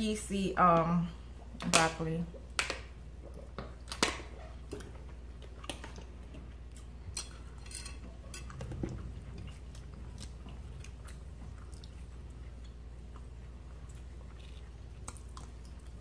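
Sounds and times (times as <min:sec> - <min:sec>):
chewing: 0:03.2 - 0:16.0
forks scraping plates: 0:07.2 - 0:08.6.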